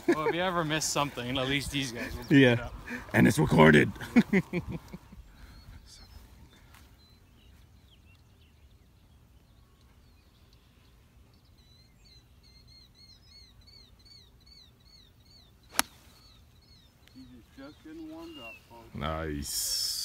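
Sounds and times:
bird chirping: 4.0s - 20.0s
golf club striking ball: 15.7s - 16.0s.

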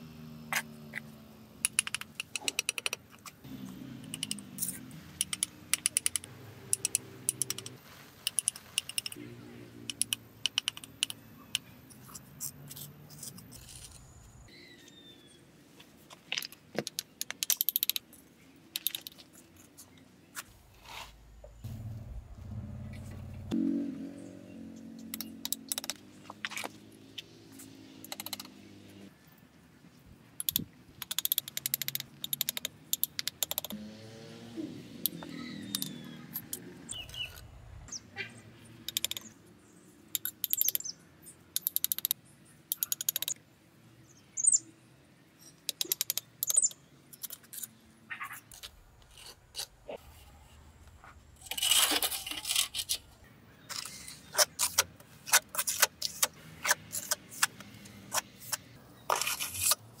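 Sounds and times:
trowel tapping and scraping bricks: 53.7s - 59.8s.

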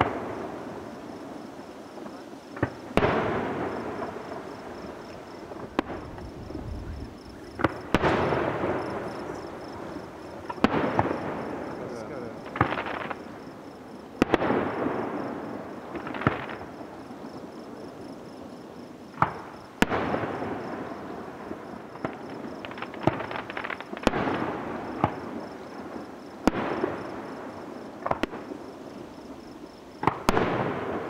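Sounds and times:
fireworks bursting with echo: 0.0s - 29.4s, 30.0s - 31.0s.

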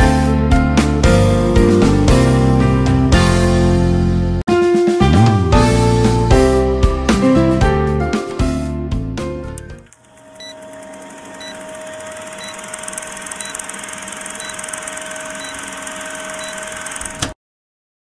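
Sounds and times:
film projector whirring: 9.8s - 17.4s.

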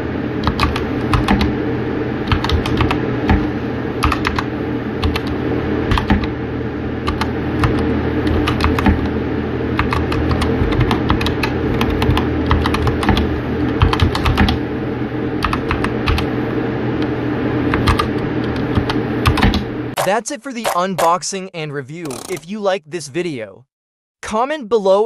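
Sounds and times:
low hum: 0.0s - 14.0s
mechanical keyboard typing: 0.4s - 1.5s, 2.3s - 3.4s, 4.0s - 6.3s, 7.1s - 9.1s, 9.8s - 14.6s, 15.4s - 16.3s, 17.7s - 21.2s.

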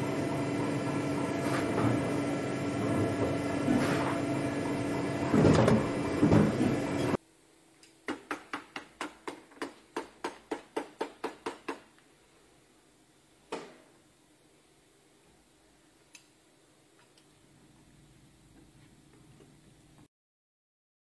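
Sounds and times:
loud steady humming noise: 0.0s - 7.2s.

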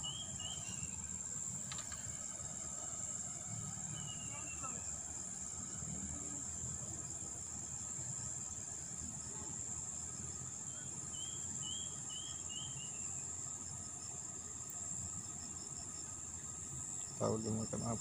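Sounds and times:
insects trilling: 0.0s - 18.0s.

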